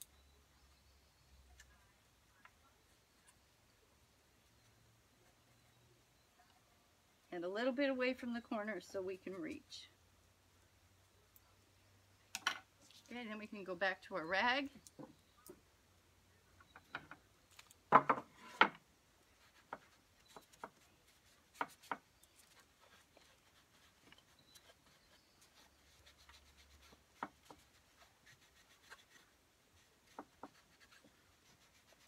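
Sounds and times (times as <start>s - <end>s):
wooden knocks: 17.9s - 18.8s.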